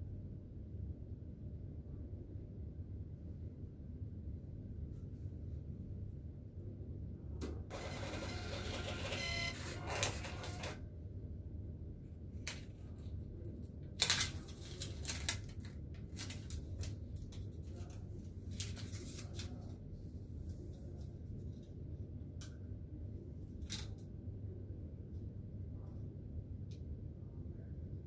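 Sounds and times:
receipt printer whirring: 7.7s - 10.8s
paper rustling: 13.9s - 19.8s.

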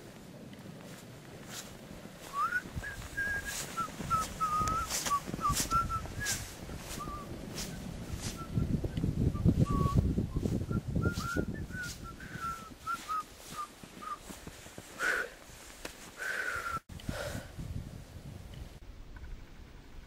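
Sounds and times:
footsteps crunching in snow: 0.0s - 16.5s
person whistling short wavering notes: 2.3s - 7.2s, 9.4s - 14.3s.

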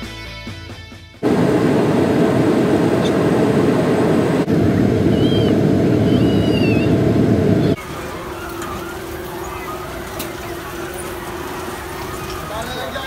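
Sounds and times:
jet engine and airflow rush: 1.2s - 7.9s.

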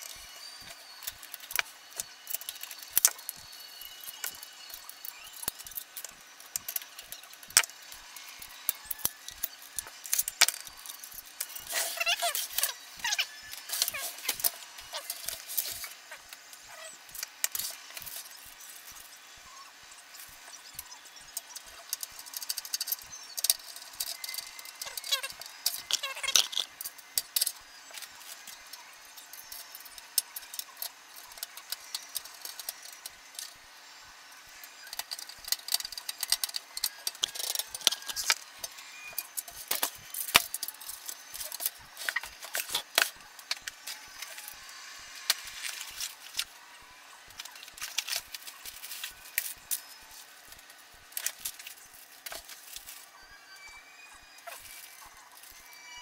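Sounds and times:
metallic clicks and rattles: 20.7s - 33.6s, 34.8s - 44.6s.

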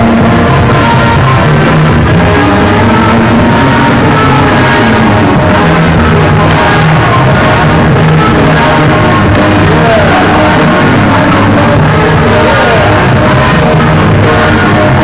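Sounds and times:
loud music: 0.0s - 15.0s.

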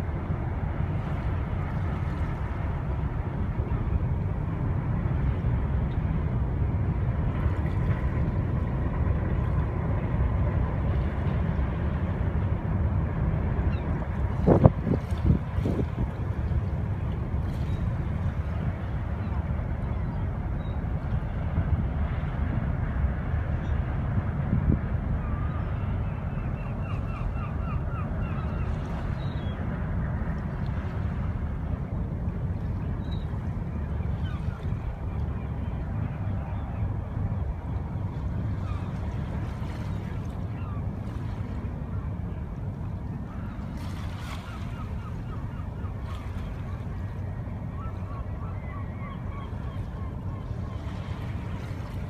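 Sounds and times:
wind on microphone: 0.0s - 26.0s
ship engine low rumble: 0.0s - 52.0s.

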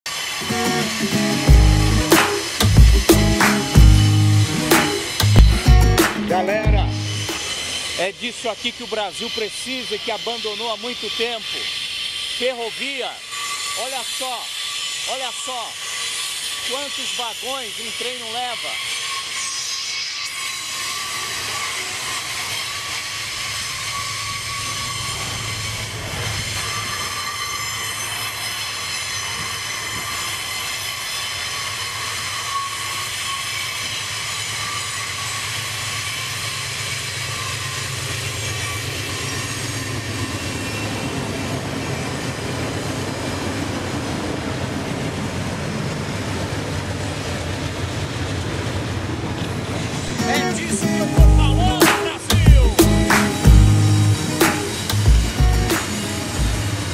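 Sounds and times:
high wheel squeal: 0.1s - 45.1s, 49.4s - 56.9s
diesel locomotive engine drone: 0.1s - 56.9s
rumble of train wheels on rail: 22.4s - 50.2s.

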